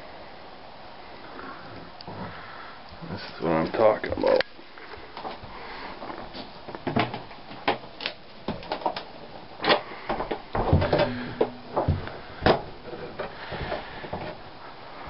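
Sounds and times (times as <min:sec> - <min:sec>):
irregular knocks and clatters: 0:10.1 - 0:14.4
brief low hum: 0:10.8 - 0:12.2.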